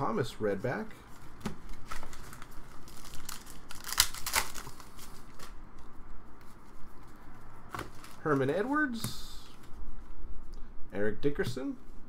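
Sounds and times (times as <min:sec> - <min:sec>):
foil wrapper tearing and crinkling: 0:01.8 - 0:05.6.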